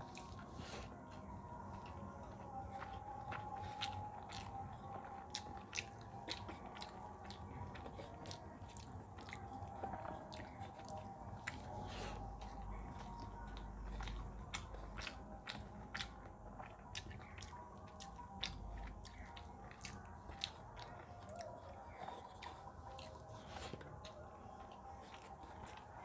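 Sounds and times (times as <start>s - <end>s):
person chewing food: 0.0s - 26.0s.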